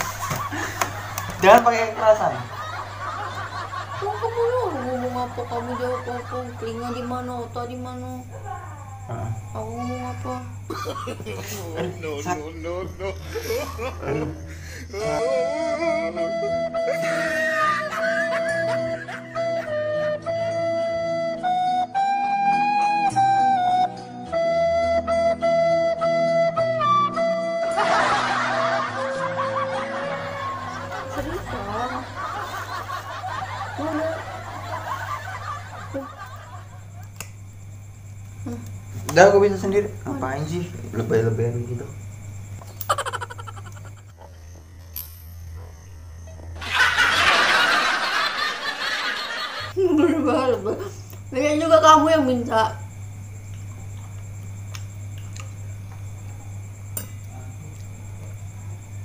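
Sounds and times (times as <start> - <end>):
people laughing: 0.0 - 7.5, 10.7 - 19.9, 27.7 - 37.2, 42.8 - 44.2, 46.6 - 51.0
steady low hum: 0.0 - 21.3, 26.9 - 59.0.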